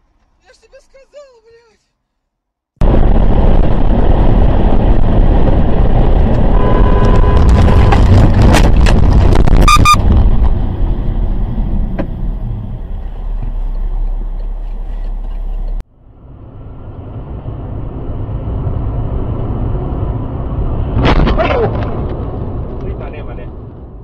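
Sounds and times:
car engine and tyre noise: 2.8s - 24.0s
car crash bangs and cracks: 21.0s - 22.2s.

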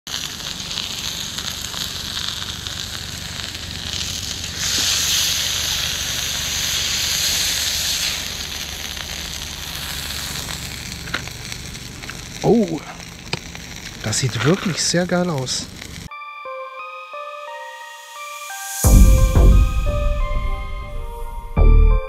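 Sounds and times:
steaks sizzling in skillet: 0.1s - 16.1s, 17.5s - 21.5s
low rumble: 18.9s - 22.0s.

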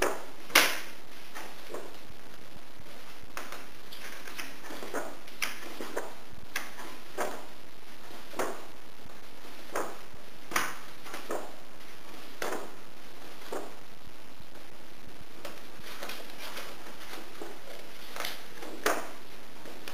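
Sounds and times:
background hiss: 0.0s - 19.9s
book pages turning: 2.9s - 8.7s, 15.4s - 19.9s.

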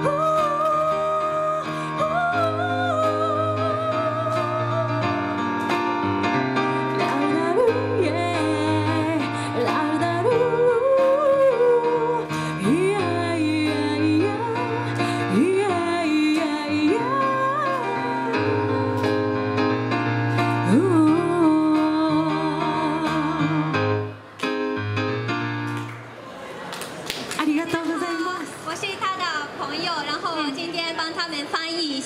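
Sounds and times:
woman singing with vibrato: 0.0s - 5.3s, 7.0s - 19.0s, 20.6s - 23.8s
bass and keyboard accompaniment: 0.0s - 27.3s.

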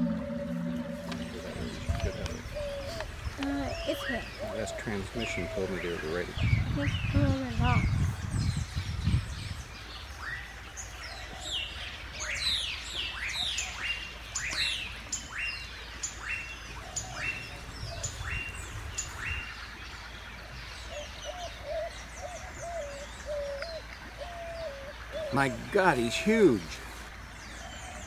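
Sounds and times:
bird wavering notes: 0.0s - 6.2s
birds chirping: 0.0s - 28.0s.

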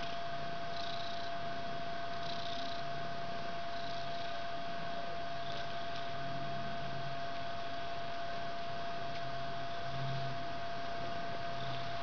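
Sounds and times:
cat purring: 0.0s - 1.5s, 2.1s - 7.2s, 11.0s - 12.0s
steady background hiss: 0.0s - 12.0s.

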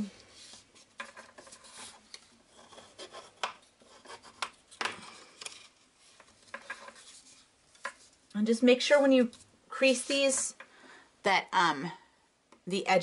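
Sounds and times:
paper rustling and rubbing: 0.2s - 8.2s.

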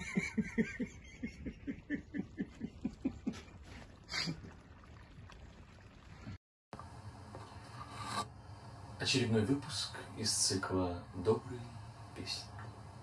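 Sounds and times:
person laughing: 0.0s - 4.5s.

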